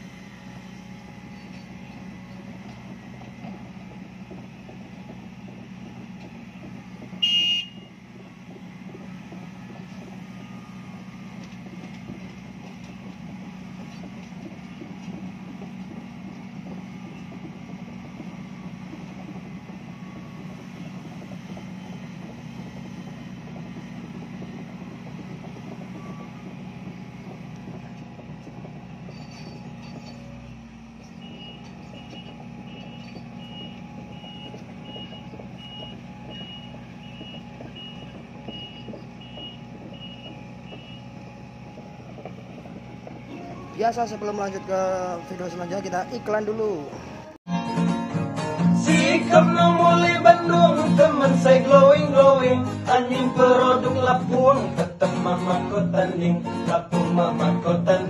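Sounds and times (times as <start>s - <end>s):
excavator diesel engine running: 0.0s - 58.0s
tracks clattering: 0.0s - 58.0s
travel alarm beeping: 6.5s - 8.1s, 19.7s - 27.8s, 31.0s - 47.3s.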